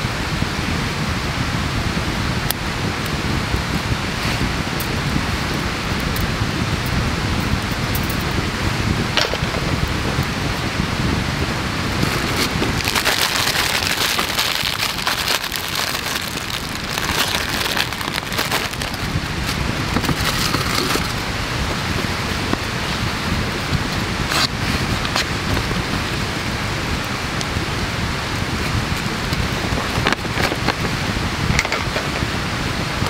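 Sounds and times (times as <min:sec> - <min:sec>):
campfire crackling and popping: 0:09.2 - 0:11.2, 0:11.8 - 0:25.8
paper filter crinkling: 0:12.0 - 0:21.2.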